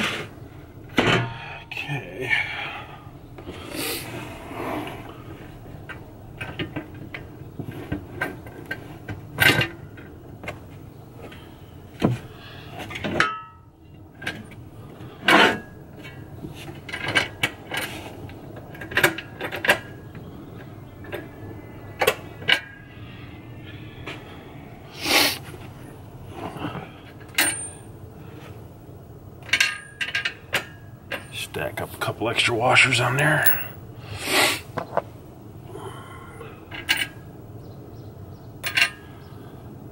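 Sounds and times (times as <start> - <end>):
metal hardware clattering on wood: 33.4 - 33.8, 38.6 - 39.0.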